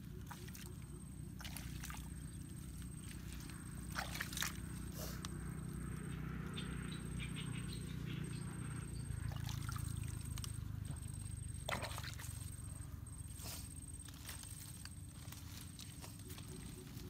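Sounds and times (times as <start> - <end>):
hands squelching in wet mud: 0.0 - 5.5, 9.2 - 12.6.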